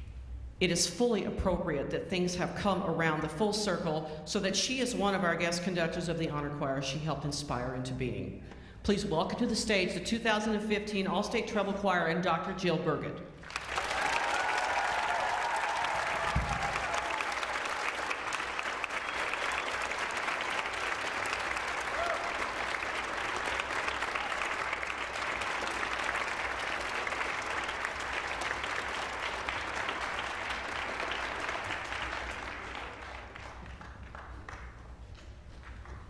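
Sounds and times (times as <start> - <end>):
audience applauding: 13.4 - 36.0
choir clapping along: 13.4 - 36.0.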